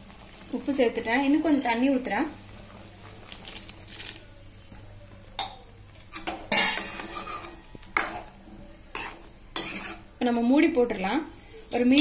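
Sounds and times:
metal ladle scraping a pan: 6.1s - 8.3s, 8.9s - 10.1s.

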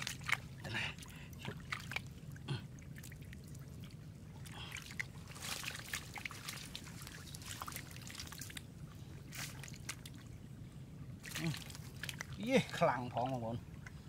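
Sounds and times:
trickling water: 0.0s - 14.0s
hands splashing in muddy water: 4.4s - 8.6s, 11.2s - 12.4s.

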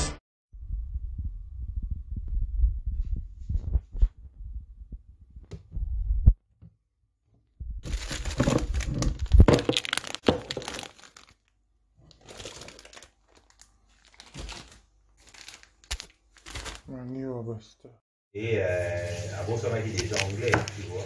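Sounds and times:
low thumping rumble: 0.6s - 6.4s
plastic bags rustling: 7.8s - 17.2s, 19.1s - 21.0s.

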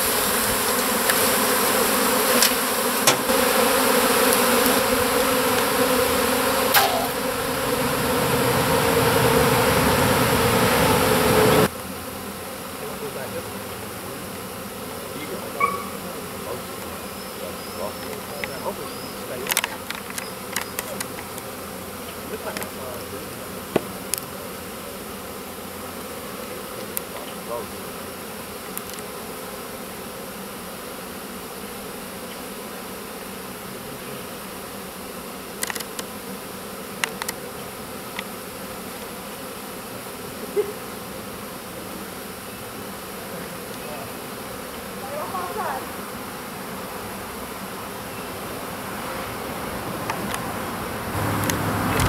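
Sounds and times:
bee swarm buzzing: 0.0s - 52.0s
sharp clicks: 19.4s - 21.4s, 35.6s - 36.1s.

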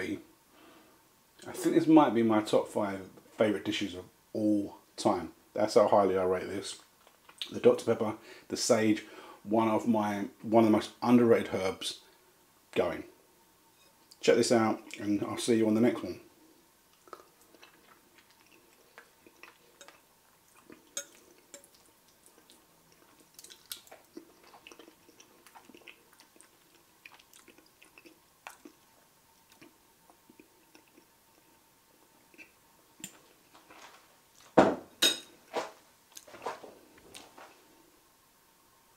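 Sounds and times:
chewing: 16.9s - 33.4s.

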